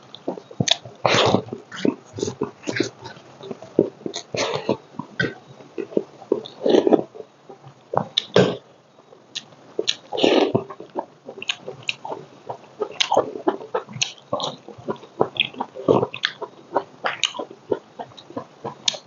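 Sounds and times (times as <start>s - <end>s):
wet chewing: 0.0s - 19.0s
lip-smacking clicks: 9.1s - 19.0s
slurping or breathing bursts: 9.8s - 11.0s.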